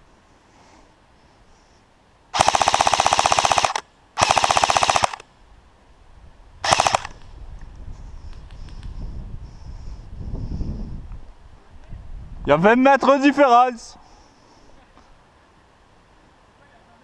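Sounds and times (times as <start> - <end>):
airsoft rifle automatic fire: 2.4 - 5.2, 6.6 - 7.1.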